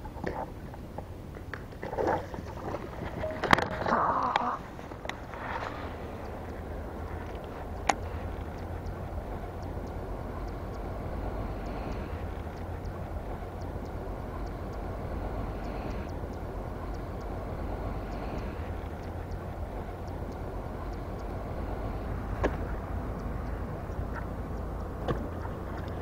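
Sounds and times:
faint light ticks: 0.0 - 26.0.

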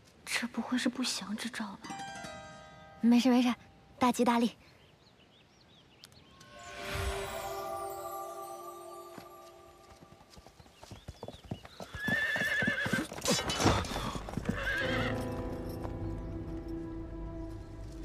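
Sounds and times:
horse hoofbeats galloping: 9.1 - 18.0
horse whinnying: 12.0 - 15.2.

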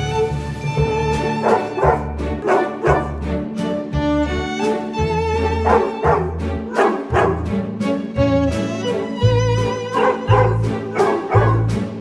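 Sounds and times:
background music: 0.0 - 12.0
dog barking: 1.4 - 3.2, 5.6 - 7.4, 9.9 - 11.7.

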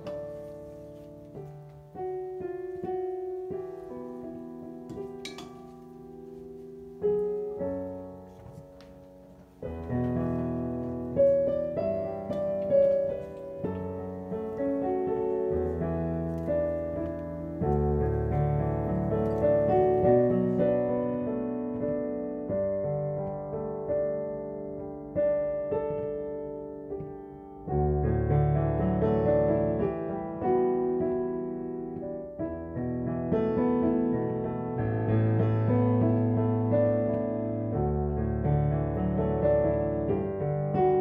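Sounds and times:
gentle piano music: 0.0 - 41.0.

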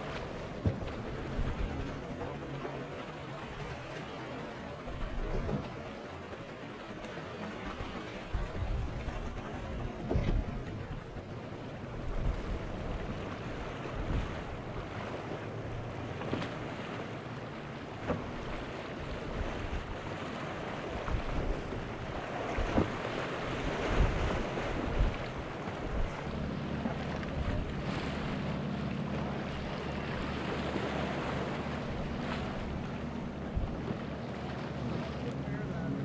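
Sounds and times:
wind buffeting microphone: 0.0 - 2.3, 7.8 - 11.3, 18.2 - 28.6, 29.3 - 35.0
low engine hum: 0.0 - 36.0
motorboat running through choppy water: 0.0 - 36.0
waves and spray: 0.0 - 36.0.

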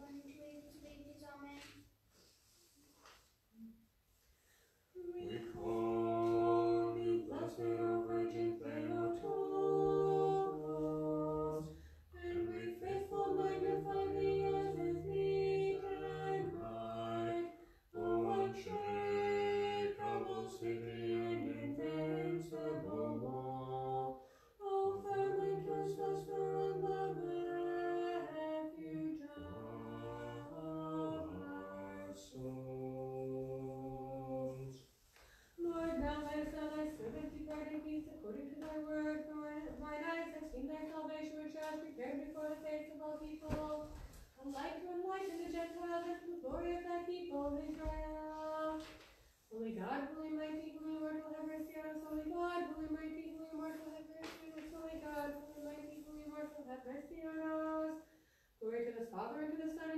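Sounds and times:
unaccompanied choir singing a hymn: 5.0 - 34.8, 35.6 - 53.3.

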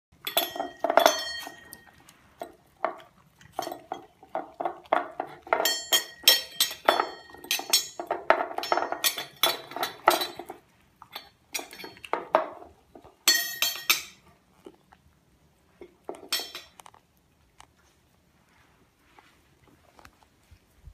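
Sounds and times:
pet bowls knocking and clinking: 0.2 - 14.3, 15.8 - 16.9
animals chewing and licking: 0.2 - 20.9.

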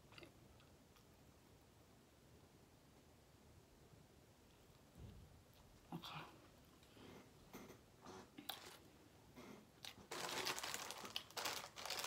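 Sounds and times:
food packaging crinkling: 8.5 - 8.8, 9.8 - 12.0.

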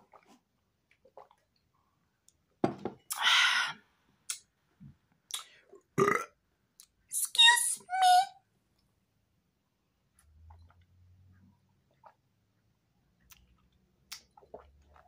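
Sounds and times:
person gulping a drink: 0.0 - 3.4, 5.3 - 7.0, 11.8 - 12.3, 13.2 - 15.0
lip smacks: 5.3 - 5.6, 13.3 - 14.7
short burp: 6.0 - 6.4.

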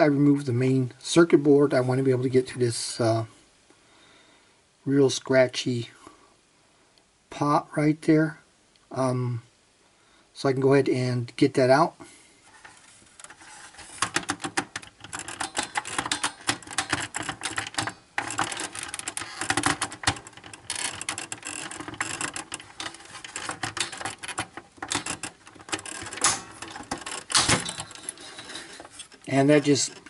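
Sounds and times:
plastic and metal clicking and rattling: 12.6 - 30.0.

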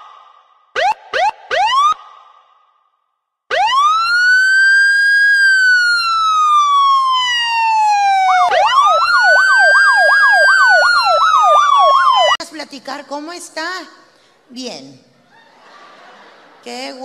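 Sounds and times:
electronic siren wailing: 0.8 - 2.0, 3.5 - 12.4
siren fast yelp: 0.8 - 2.0, 3.5 - 12.4.

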